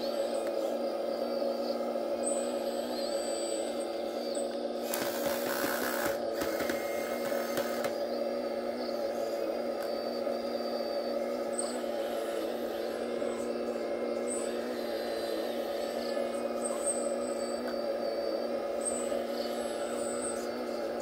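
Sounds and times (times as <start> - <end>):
model excavator drive whine: 0.0 - 21.0.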